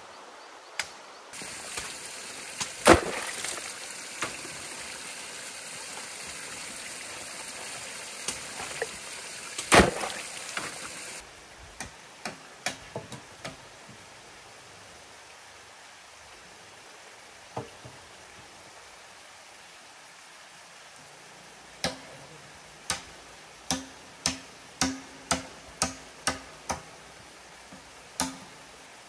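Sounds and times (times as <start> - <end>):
hammer striking wood: 23.7 - 26.8.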